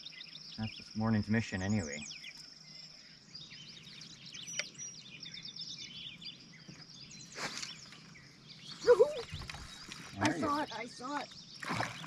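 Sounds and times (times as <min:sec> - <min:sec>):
songbirds chirping and singing: 0:00.0 - 0:12.0.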